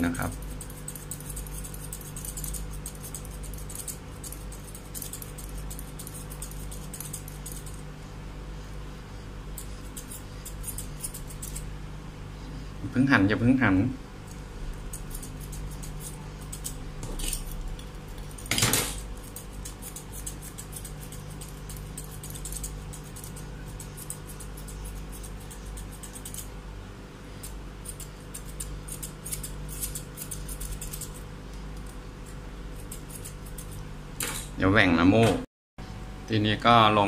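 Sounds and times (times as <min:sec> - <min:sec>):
scissors snipping fur: 0:00.0 - 0:07.8, 0:09.6 - 0:11.7, 0:14.2 - 0:26.6, 0:27.3 - 0:34.4.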